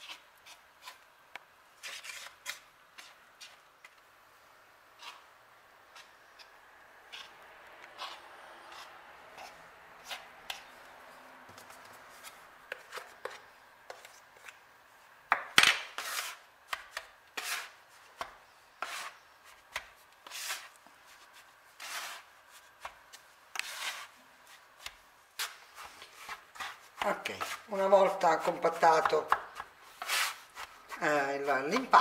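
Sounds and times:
bench scraper chopping dough: 15.3s - 20.7s, 21.8s - 24.1s, 24.8s - 32.0s.

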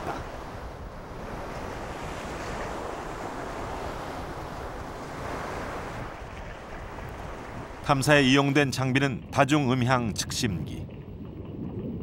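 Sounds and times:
wind buffeting microphone: 0.0s - 8.2s
water sloshing against boat: 0.0s - 11.5s.

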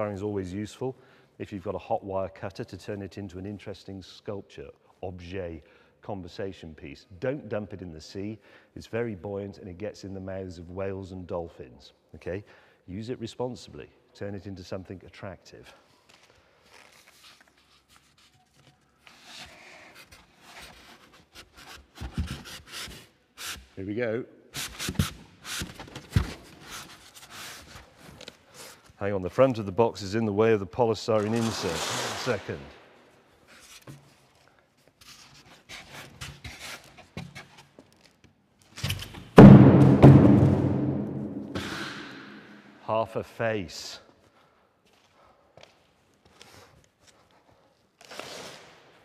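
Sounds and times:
polystyrene squeaking on cardboard: 16.6s - 23.8s, 24.6s - 28.9s, 31.2s - 32.6s, 48.0s - 48.8s
polystyrene scraping cardboard: 24.6s - 28.8s, 31.2s - 32.6s.

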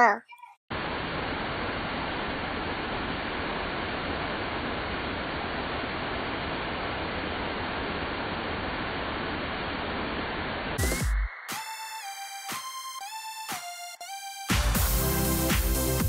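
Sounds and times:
steady rushing noise: 0.7s - 10.8s.

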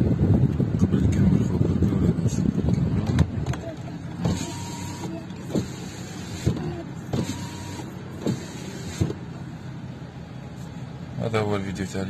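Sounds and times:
power window motor: 4.2s - 9.2s.

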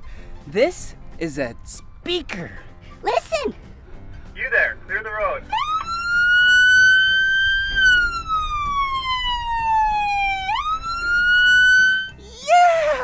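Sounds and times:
police siren wailing: 5.4s - 12.2s.

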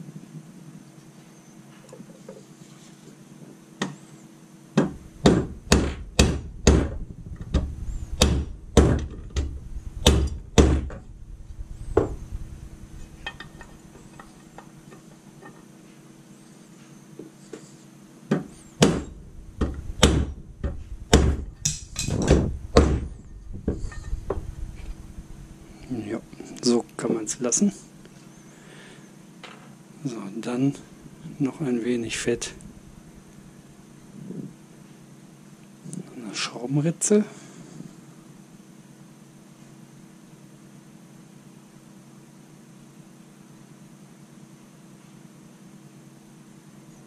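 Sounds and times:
hammer striking metal socket: 21.6s - 22.3s.

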